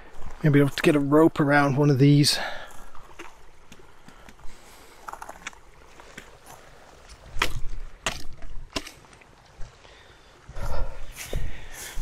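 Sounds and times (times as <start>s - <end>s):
stick splashing in water: 7.2s - 9.2s.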